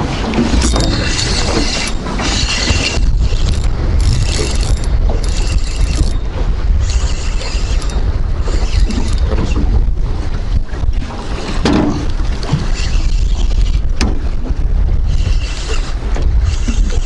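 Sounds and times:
wind on microphone: 0:00.0 - 0:17.0
spinning reel cranking: 0:00.6 - 0:06.2, 0:06.8 - 0:09.6, 0:12.7 - 0:13.8, 0:15.1 - 0:17.0.

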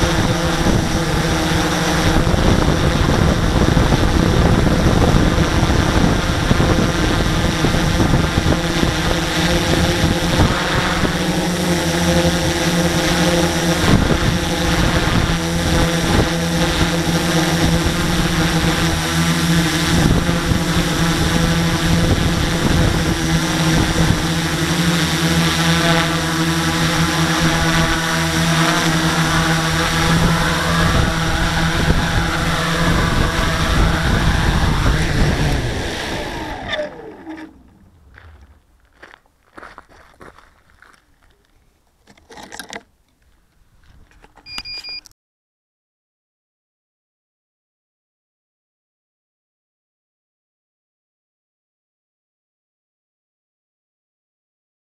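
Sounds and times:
drone propellers whining: 0:00.0 - 0:39.2.

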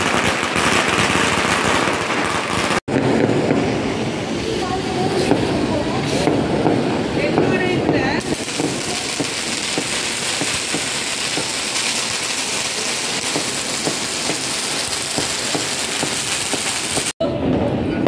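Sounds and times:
fireworks crackling: 0:00.0 - 0:17.9.

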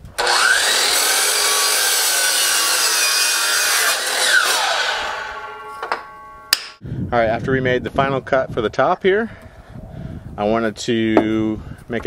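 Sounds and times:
miter saw motor whining: 0:00.2 - 0:05.8
saw blade cutting wood: 0:00.2 - 0:06.7.

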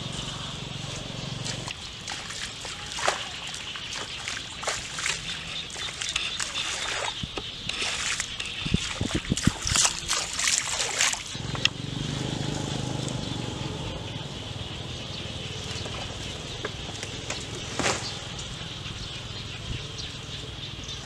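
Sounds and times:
bare feet splashing in water: 0:00.9 - 0:11.6
sharp crack: 0:17.0 - 0:18.5
dry palm fronds swishing: 0:17.0 - 0:18.6.

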